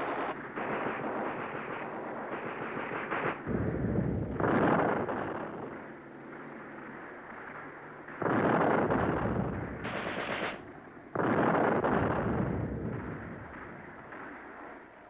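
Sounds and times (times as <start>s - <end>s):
gunfire bursts: 0.0s - 15.0s.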